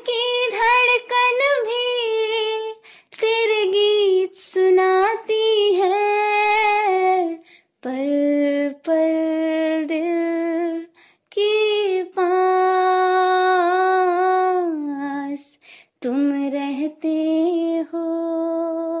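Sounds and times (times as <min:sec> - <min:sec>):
singer breathing: 0:02.8 - 0:03.1, 0:07.4 - 0:07.8, 0:10.9 - 0:11.3, 0:15.6 - 0:16.0.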